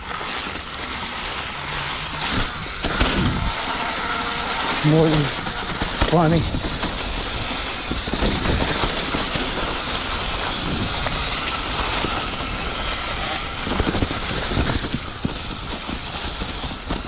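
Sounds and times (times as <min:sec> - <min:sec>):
bike tyres crunching dry leaves: 0:00.0 - 0:17.0
wind on microphone: 0:01.6 - 0:17.0.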